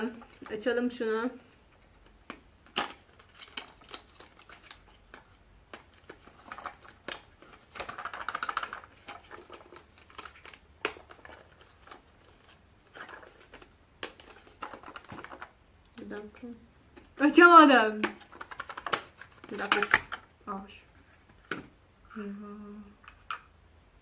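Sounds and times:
plastic wrapping crinkling: 0:02.7 - 0:20.3.

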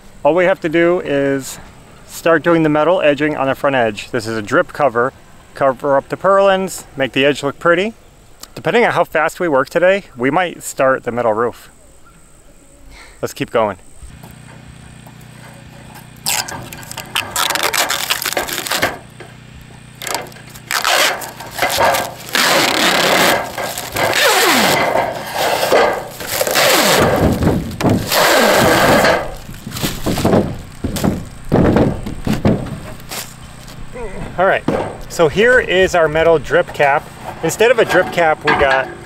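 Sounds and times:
plastic film peeling crackling: 0:16.1 - 0:19.2, 0:20.0 - 0:33.9.

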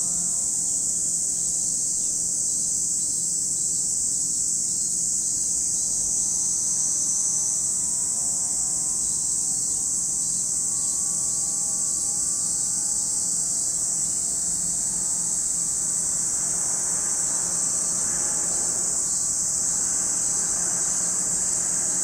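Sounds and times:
distant aircraft drone: 0:00.0 - 0:02.4, 0:05.2 - 0:22.0
cicadas buzzing: 0:00.0 - 0:22.0.

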